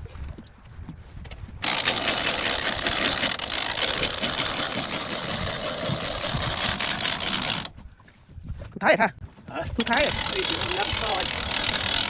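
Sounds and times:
winch fast clicking: 0:01.6 - 0:07.7, 0:09.8 - 0:12.0
winch mechanical whirr: 0:01.6 - 0:07.7, 0:09.8 - 0:12.0.

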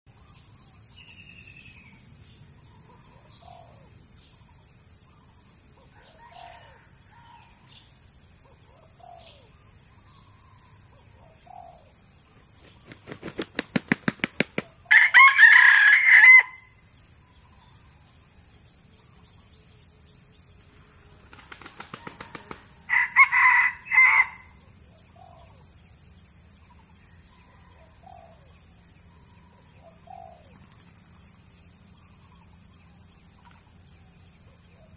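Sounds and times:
rooster crowing: 0:05.9 - 0:07.6, 0:14.9 - 0:16.8, 0:22.0 - 0:24.6
wings flapping: 0:12.5 - 0:14.8, 0:21.2 - 0:22.7.

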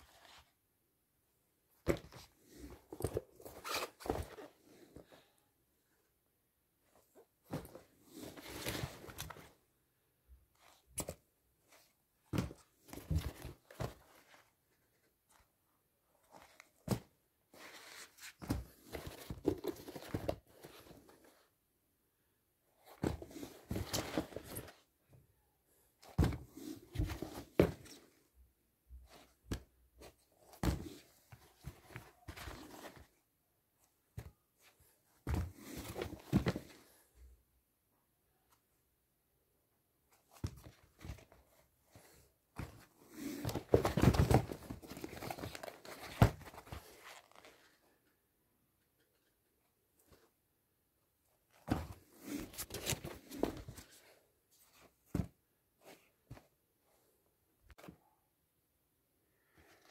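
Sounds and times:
sneakers rustling and rubbing: 0:01.8 - 0:05.2, 0:22.8 - 0:24.8, 0:26.1 - 0:28.0, 0:40.4 - 0:47.6, 0:51.6 - 0:54.0.

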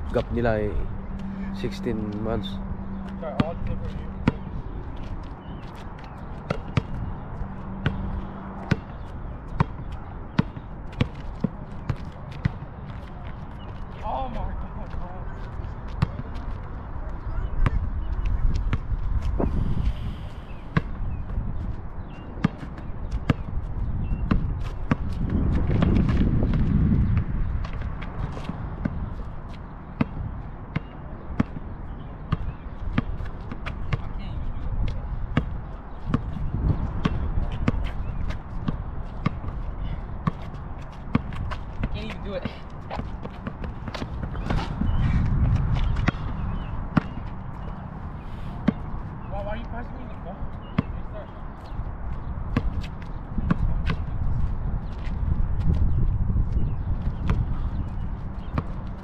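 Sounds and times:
basketball bouncing on asphalt: 0:02.8 - 0:48.0, 0:48.6 - 0:59.0.

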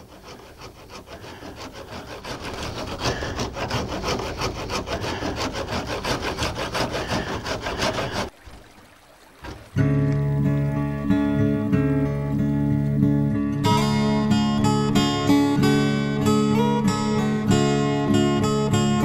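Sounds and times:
hand saw sawing wood: 0:00.0 - 0:08.3.

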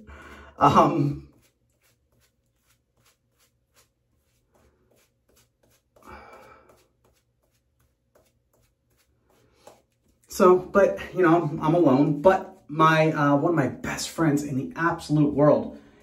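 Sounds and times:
cloth rubbing on face: 0:00.8 - 0:10.5.

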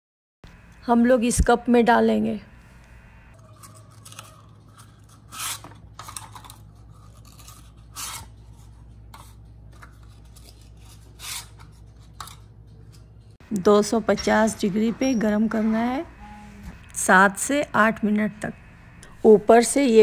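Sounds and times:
paper liners crinkling and rustling: 0:03.6 - 0:13.0.

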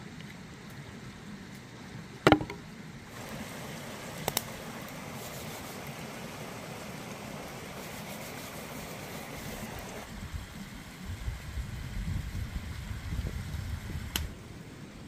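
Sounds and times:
loud sharp knock: 0:02.3 - 0:02.6
small rocky stream rushing: 0:03.1 - 0:10.2.

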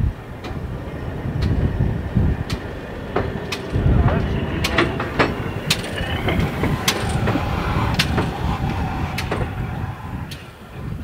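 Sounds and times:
steam locomotive rumbling past: 0:00.0 - 0:11.0
sharp metallic clanks: 0:02.4 - 0:09.7.

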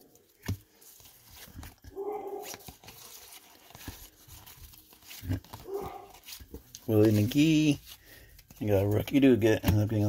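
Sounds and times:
cards sliding and flipping: 0:00.0 - 0:10.0
dog whining: 0:05.6 - 0:06.1.

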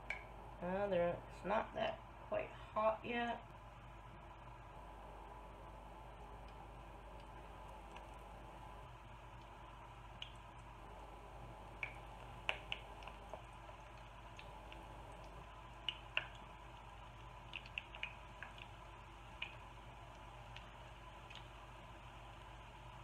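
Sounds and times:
sharp pops and clicks of oil: 0:00.0 - 0:00.3, 0:10.2 - 0:10.7, 0:11.8 - 0:21.6
oil sizzling in a pan: 0:06.7 - 0:23.0.

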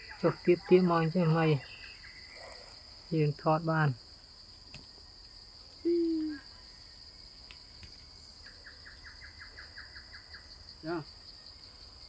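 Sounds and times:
high insect drone: 0:00.0 - 0:12.0
small descending chirps: 0:05.8 - 0:06.4.

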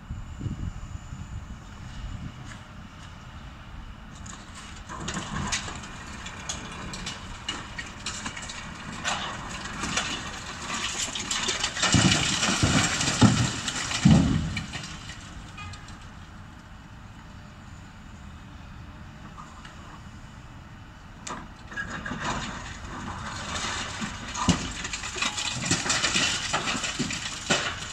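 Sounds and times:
concrete cracking and crunching: 0:04.2 - 0:16.0, 0:21.7 - 0:27.9
heavy thumps of falling debris: 0:04.3 - 0:15.9, 0:21.8 - 0:27.9.

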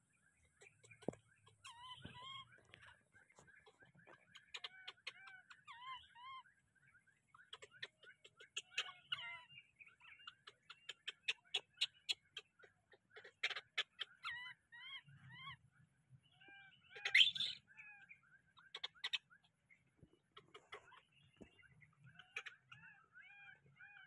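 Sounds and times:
baby monkey squeaking: 0:00.7 - 0:03.0, 0:04.1 - 0:06.2, 0:07.4 - 0:09.5, 0:10.2 - 0:15.4, 0:16.9 - 0:18.0, 0:18.6 - 0:19.3, 0:22.2 - 0:24.0.

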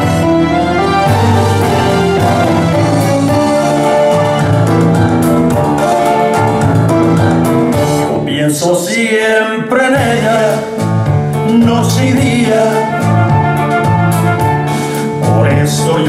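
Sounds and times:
instrumental accompaniment with beat: 0:00.0 - 0:08.4, 0:09.9 - 0:16.0
men singing into microphones: 0:01.6 - 0:10.8, 0:11.4 - 0:13.4, 0:15.2 - 0:16.0.

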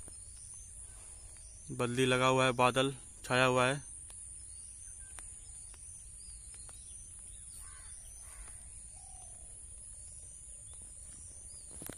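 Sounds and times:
small birds chirping: 0:00.0 - 0:11.9
crow cawing: 0:07.6 - 0:09.5.

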